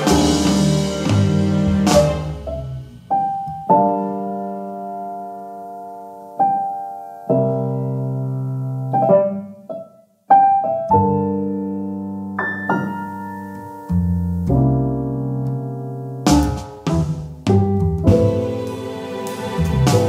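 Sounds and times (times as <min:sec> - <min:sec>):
slow piano chords: 0:00.0 - 0:20.0.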